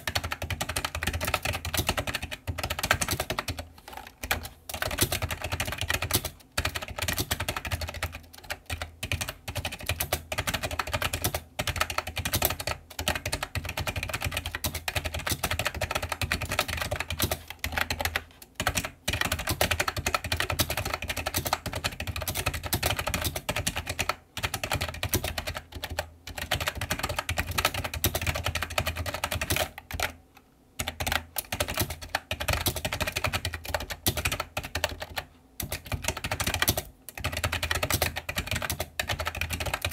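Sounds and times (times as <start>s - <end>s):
rapid keyboard typing: 0.0s - 30.2s, 30.8s - 39.9s.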